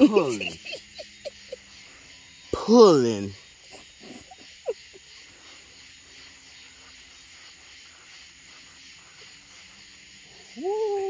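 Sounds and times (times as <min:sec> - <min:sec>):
steady high hiss: 0:00.0 - 0:11.0.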